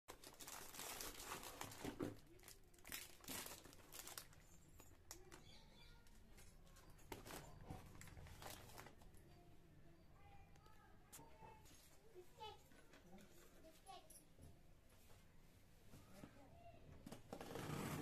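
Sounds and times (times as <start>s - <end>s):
plastic packaging crinkling: 0.1s - 5.6s, 7.1s - 9.1s.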